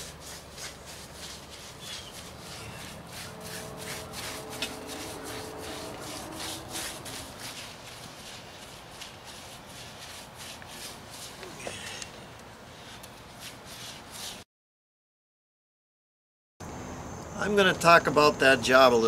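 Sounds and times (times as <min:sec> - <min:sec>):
paintbrush scrubbing gritty paint: 0:00.0 - 0:11.6, 0:12.7 - 0:14.4.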